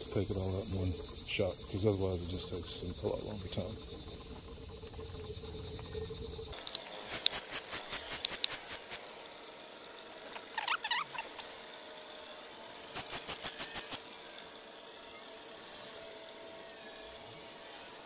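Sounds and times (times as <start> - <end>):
steady low hum: 0.0 - 11.6
sharp pump clicks: 6.6 - 9.0
high squeaky chirps: 10.3 - 11.5.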